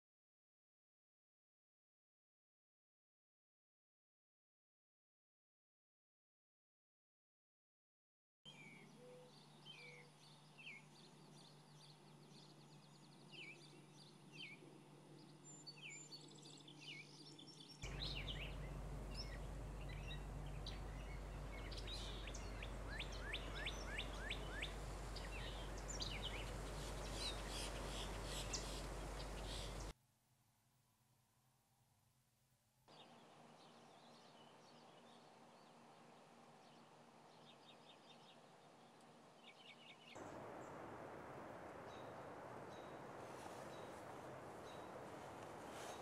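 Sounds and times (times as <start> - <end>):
songbird chirping: 8.5 - 29.9, 32.9 - 46.0
faint steady hum: 8.5 - 46.0
varied bird chirps and runs: 15.2 - 29.9
low rumble: 17.8 - 29.9, 40.2 - 46.0.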